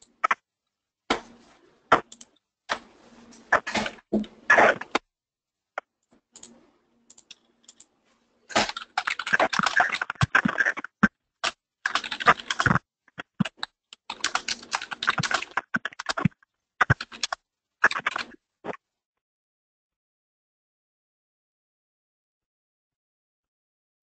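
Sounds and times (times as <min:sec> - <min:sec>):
computer keyboard typing: 0:08.5 - 0:18.4.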